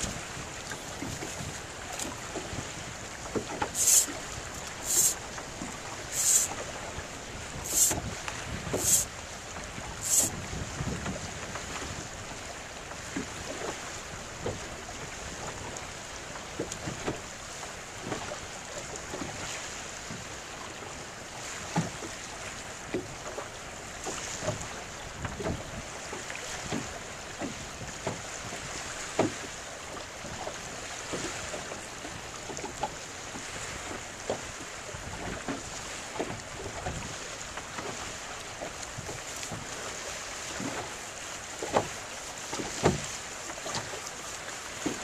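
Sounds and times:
small waves slapping boat hull: 0.0 - 45.0
wind hiss on microphone: 3.7 - 4.2, 4.8 - 5.2, 6.1 - 6.6, 7.4 - 9.2, 9.8 - 11.2.

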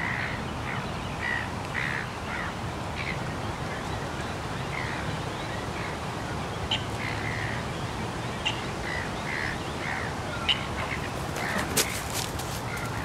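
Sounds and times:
waterbirds calling: 0.0 - 13.0
distant traffic rumble: 5.8 - 13.0.

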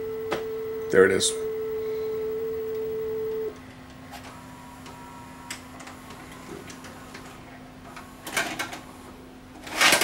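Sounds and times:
steady test tone: 0.0 - 3.6
low steady hum: 0.0 - 7.2.

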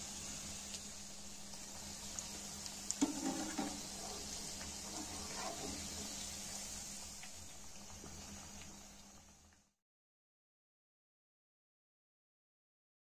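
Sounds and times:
food sizzling in hot oil: 0.0 - 9.8
metal spatula scraping pan: 3.0 - 6.2.

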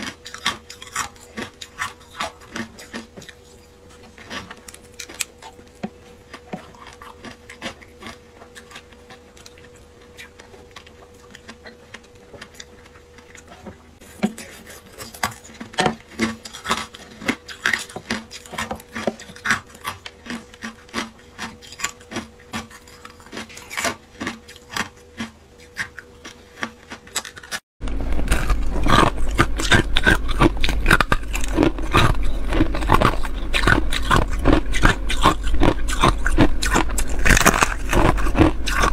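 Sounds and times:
low hum: 27.8 - 38.9.

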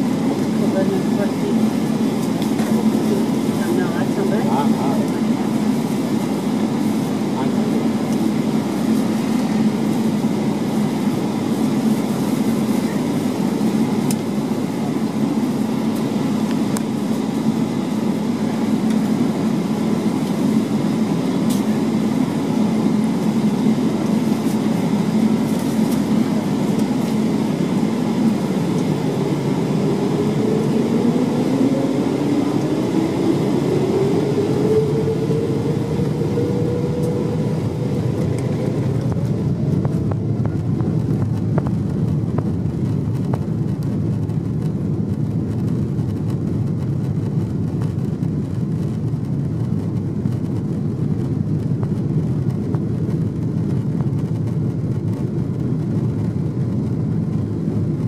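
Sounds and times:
airliner cabin rumble: 0.0 - 58.0
jet engines spooling up: 0.0 - 58.0.

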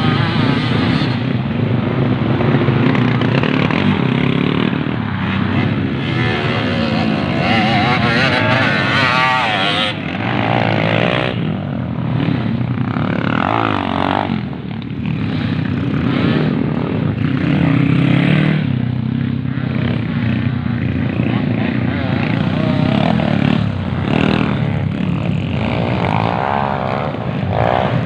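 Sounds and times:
dirt bike engines revving: 0.0 - 28.0.

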